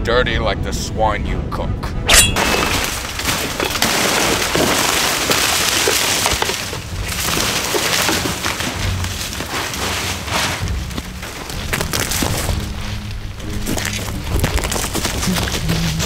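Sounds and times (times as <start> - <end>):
fronds and undergrowth rustling: 2.4 - 16.0
small twigs snapping: 2.8 - 16.0.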